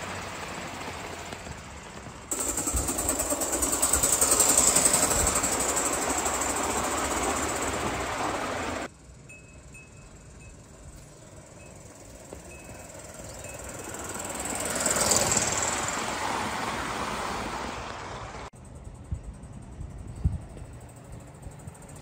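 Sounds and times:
model train wheel noise: 0.0 - 16.8
steam hiss: 2.3 - 8.9.

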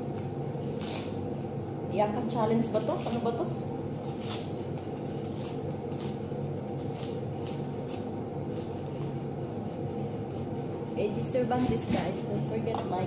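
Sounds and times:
steady low hum: 0.0 - 13.0
onion skins crackling and rustling: 0.1 - 1.2, 2.5 - 12.4.

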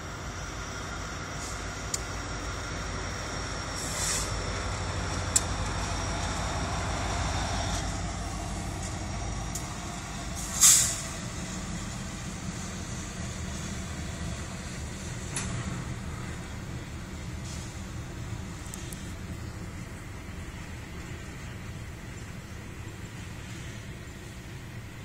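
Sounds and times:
diesel locomotives rumbling past: 0.0 - 25.0
short sharp hiss: 3.8 - 4.4, 10.4 - 11.2.

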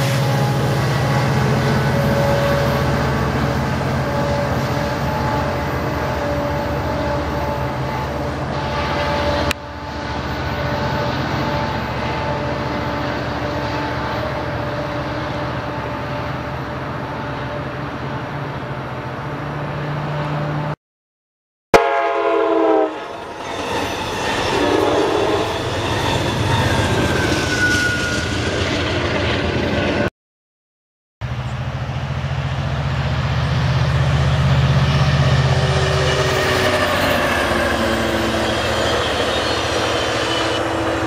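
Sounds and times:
train horn chord: 0.0 - 17.8, 21.8 - 23.2
diesel locomotive running: 0.0 - 20.8, 21.8 - 30.1, 31.2 - 41.0.

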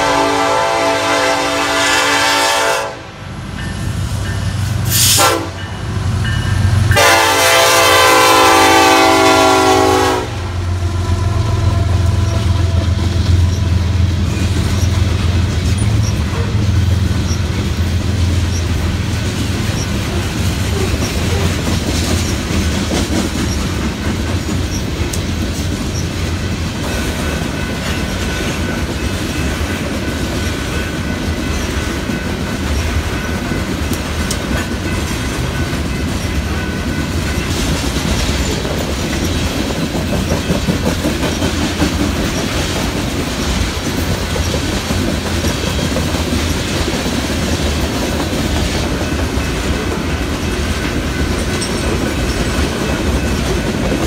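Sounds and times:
freight train rumbling past: 0.0 - 54.0
wheels clicking over rail joints: 11.9 - 54.0.

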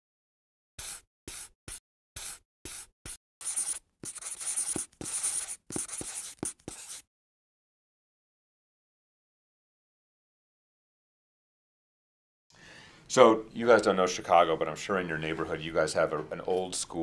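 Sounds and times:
marker drawing on a whiteboard: 0.8 - 7.0.

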